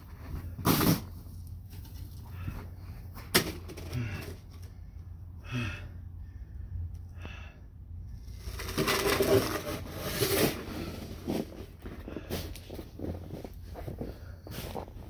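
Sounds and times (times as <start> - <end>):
snow shovel scraping through snow: 8.7 - 11.6.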